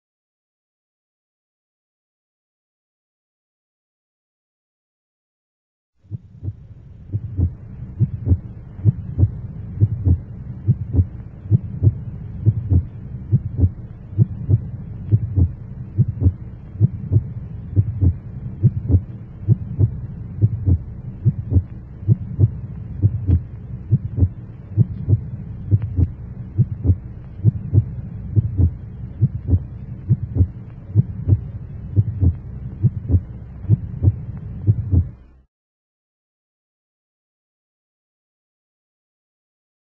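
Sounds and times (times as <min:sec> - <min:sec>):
continuous low hum: 0:06.0 - 0:35.5.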